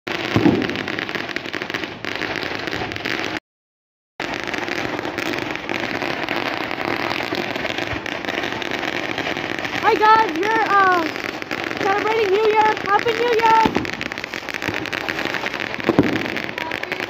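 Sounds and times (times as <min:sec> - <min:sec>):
fireworks crackling and banging: 0:00.1 - 0:03.4, 0:04.2 - 0:17.0
loud firework bang: 0:00.3 - 0:01.0, 0:04.2 - 0:17.0.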